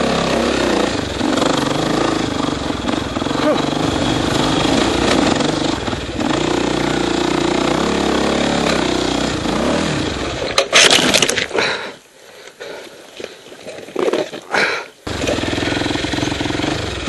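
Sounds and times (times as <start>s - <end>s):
dirt bike engine running: 0.0s - 10.6s, 15.1s - 17.0s.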